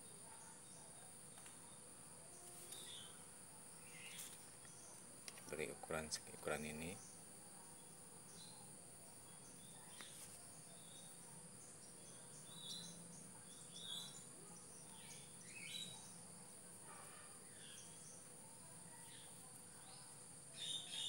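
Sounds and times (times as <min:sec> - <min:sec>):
high insect drone: 0:00.0 - 0:21.0
bird chirps: 0:07.8 - 0:16.3, 0:18.9 - 0:21.0.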